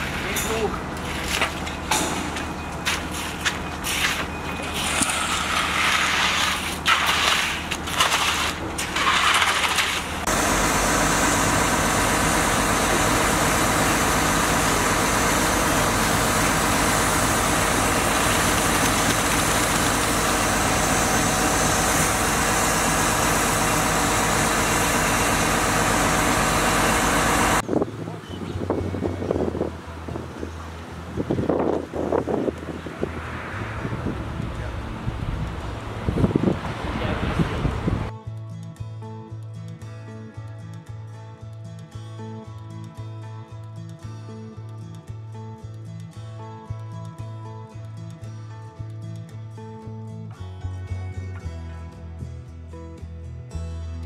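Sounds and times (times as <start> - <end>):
rakes scraping wet concrete: 0.0 - 1.7, 2.9 - 10.3
concrete pump engine running: 0.0 - 27.6.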